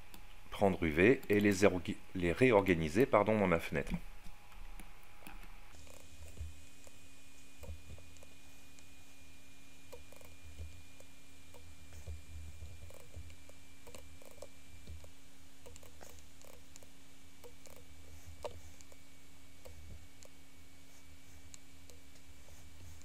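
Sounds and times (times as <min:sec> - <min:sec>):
low electrical hum: 0:00.0 - 0:23.0
computer mouse clicks: 0:12.8 - 0:19.0.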